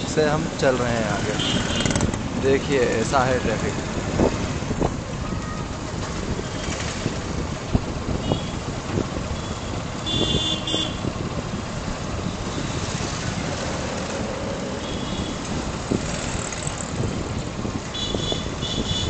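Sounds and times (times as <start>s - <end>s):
traffic rumble: 0.0s - 19.0s
vehicle horn beeping: 8.2s - 8.6s, 9.4s - 11.1s, 17.9s - 19.0s.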